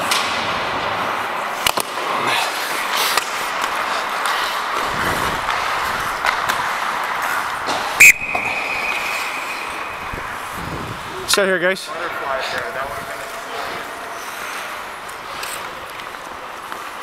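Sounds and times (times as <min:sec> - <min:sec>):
skates scraping on ice: 0:00.0 - 0:17.0
stick hitting puck: 0:01.6 - 0:02.1, 0:05.4 - 0:10.5
referee's whistle blast: 0:08.0 - 0:10.4.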